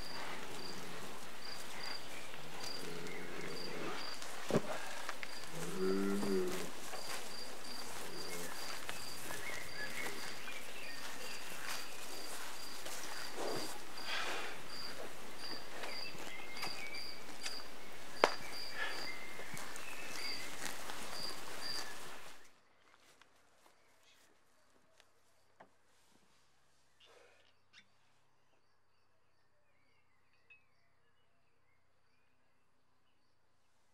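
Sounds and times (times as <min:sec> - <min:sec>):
crickets chirping: 0:00.0 - 0:22.5
soft rural background: 0:00.0 - 0:33.9.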